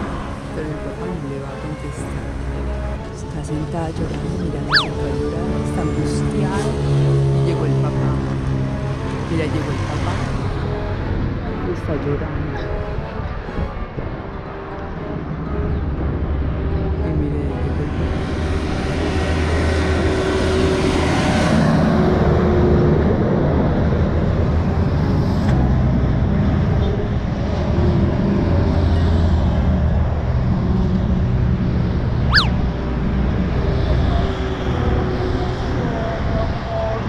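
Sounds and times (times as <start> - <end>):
highway traffic: 0.0 - 13.4, 31.0 - 35.2.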